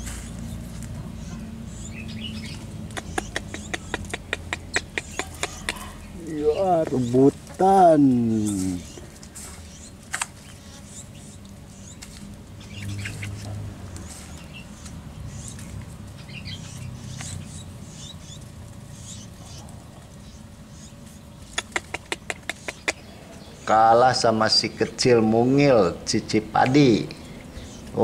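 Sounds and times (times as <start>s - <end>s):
low steady hum: 0.0s - 28.0s
small birds chirping: 0.0s - 28.0s
sharp ticks: 2.8s - 5.8s, 21.4s - 23.0s.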